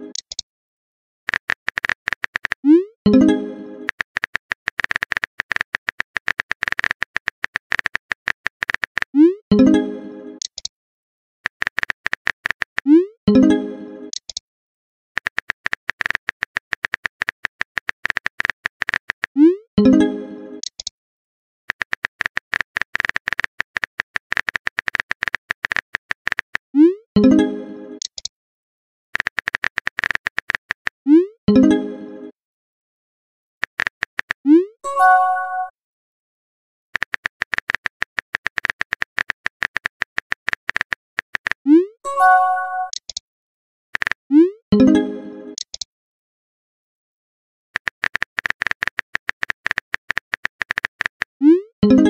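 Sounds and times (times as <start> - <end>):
message alert tone: 34.5 - 35.7, 41.7 - 43.0, 51.4 - 52.0
phone chime: 34.9 - 35.7, 42.1 - 43.0.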